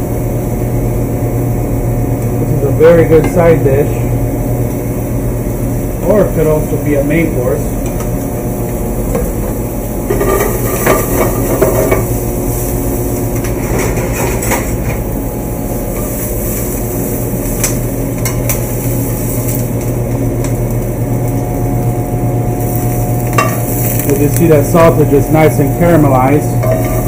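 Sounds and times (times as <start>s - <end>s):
ventilation hum: 0.0s - 27.0s
metal spoon and pans clanking: 10.1s - 12.1s, 13.4s - 15.0s, 23.3s - 23.7s, 26.6s - 27.0s.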